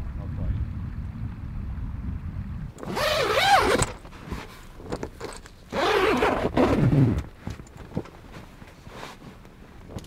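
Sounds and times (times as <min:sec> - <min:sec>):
zipper being pulled open: 0:02.8 - 0:07.4
small clicks and rustling: 0:03.7 - 0:05.8, 0:07.1 - 0:10.0.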